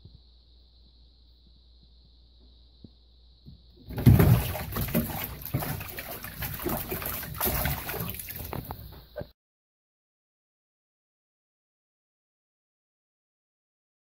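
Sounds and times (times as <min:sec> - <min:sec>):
cat splashing in water: 0:03.9 - 0:08.9.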